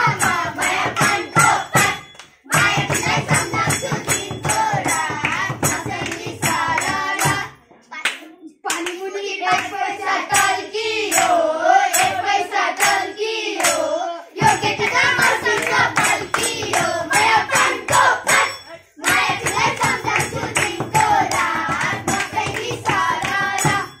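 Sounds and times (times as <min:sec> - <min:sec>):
children singing: 0:00.0 - 0:07.6, 0:08.7 - 0:24.0
hand clapping: 0:00.0 - 0:13.8, 0:14.4 - 0:24.0.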